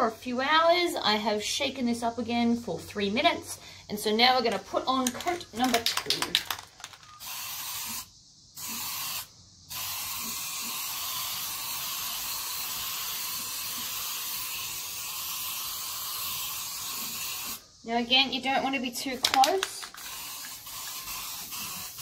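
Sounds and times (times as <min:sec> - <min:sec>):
aerosol spray can hissing: 0:05.6 - 0:17.6, 0:19.2 - 0:22.0.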